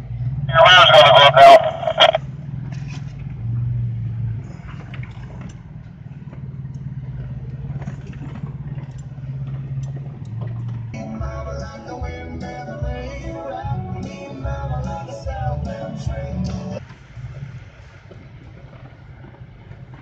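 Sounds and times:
off-road vehicle engine running: 0.0 - 20.0
music: 11.0 - 16.8.

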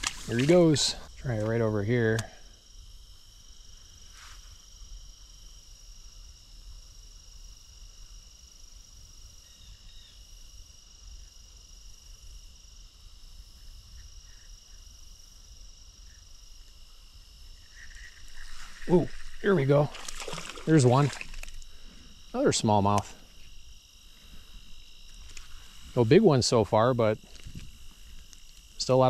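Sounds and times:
insects trilling: 0.0 - 29.0.

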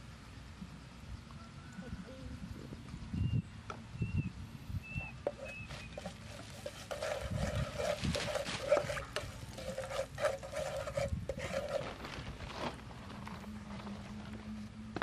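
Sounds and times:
spatula scraping frying pan: 5.3 - 12.0.

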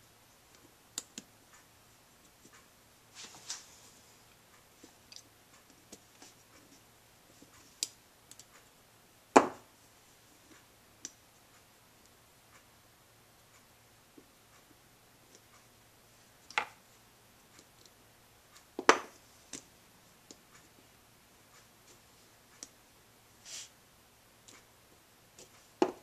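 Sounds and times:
small parts clicking and tapping: 4.6 - 8.7, 17.5 - 18.0.

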